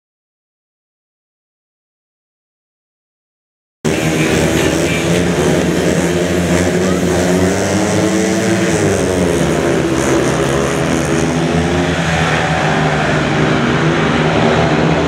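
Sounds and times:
motorcycle engines revving hard: 3.9 - 15.0.

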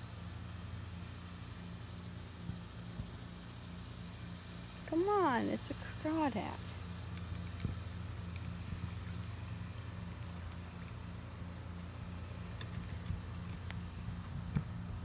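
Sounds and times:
low motor hum pulsing: 0.0 - 15.0.

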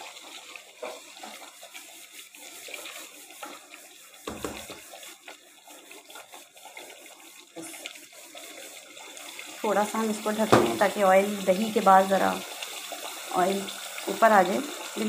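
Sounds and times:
gravy sizzling in oil in a pan: 0.0 - 15.0
brief thump: 10.5 - 10.8.

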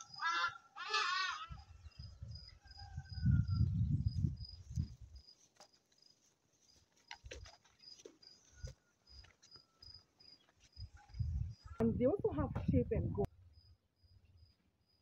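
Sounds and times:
cricket chirping: 0.0 - 11.8, 13.5 - 15.0.

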